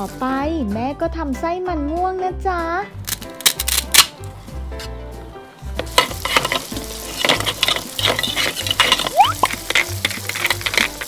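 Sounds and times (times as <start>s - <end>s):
sizzling frying sound: 0.0s - 0.5s, 4.3s - 11.0s
background music: 0.0s - 11.0s
spatula scraping plastic pan: 6.1s - 11.0s.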